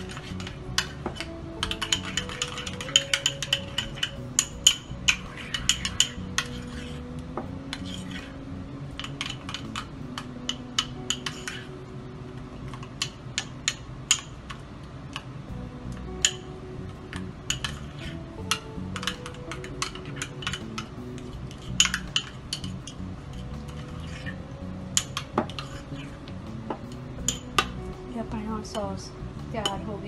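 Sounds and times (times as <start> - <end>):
spoon clinking and scraping bowl: 0.0 - 8.4, 9.0 - 11.7, 17.5 - 24.4, 25.0 - 27.8.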